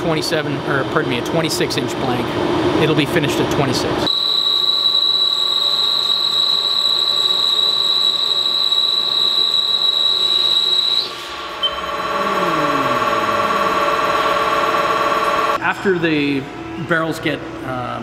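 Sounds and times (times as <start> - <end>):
lathe cutting steel whine: 4.2 - 15.6
low hum falling in pitch: 11.3 - 15.6.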